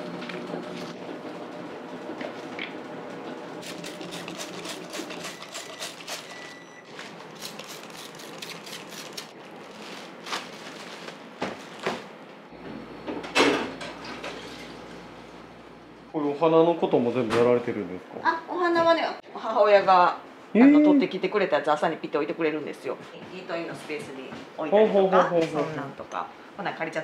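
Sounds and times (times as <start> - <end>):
plastic bag crinkling: 7.3 - 11.8.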